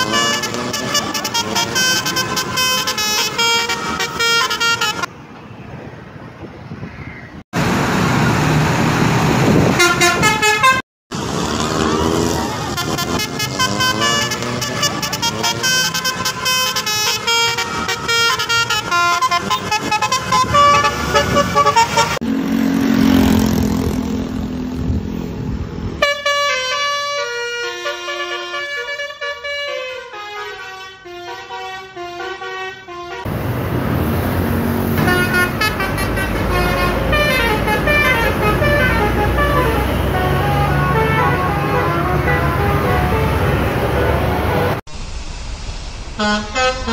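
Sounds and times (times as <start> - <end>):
bus air horns playing tunes: 0.0 - 5.1, 9.7 - 10.8, 12.5 - 22.2, 26.0 - 33.3, 34.9 - 44.8, 46.2 - 46.9
low horn or engine tone: 0.0 - 5.1, 9.7 - 10.8, 11.4 - 33.4, 34.9 - 44.8, 46.2 - 46.9
road traffic: 0.0 - 46.9.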